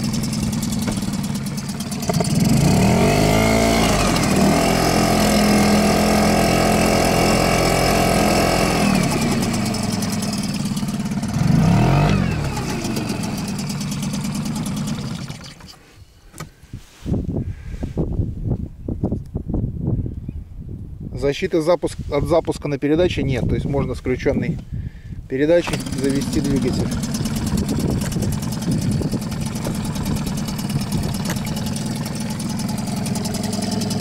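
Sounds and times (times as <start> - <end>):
outboard motor running: 0.0 - 15.9, 25.6 - 34.0.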